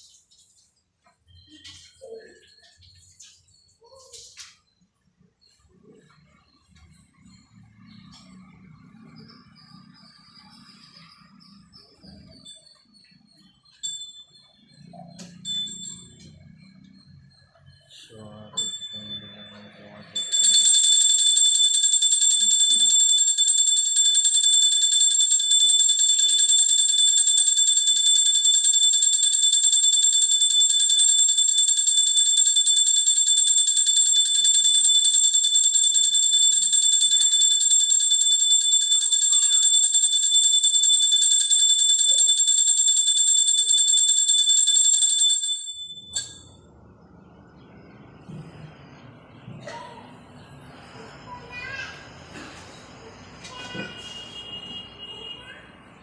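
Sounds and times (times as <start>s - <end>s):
hand bell ringing fast: 15.1s - 16.6s, 18.6s - 46.6s.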